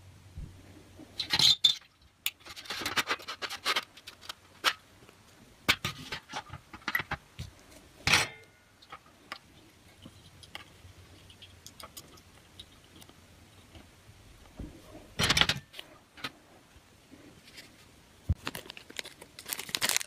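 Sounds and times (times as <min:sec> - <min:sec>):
circuit board handling clicks and rustles: 0:01.2 - 0:13.9.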